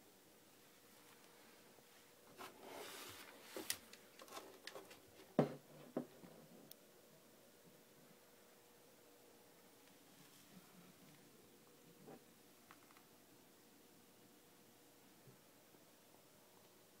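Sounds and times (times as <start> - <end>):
rustling and light clicks: 2.3 - 5.4.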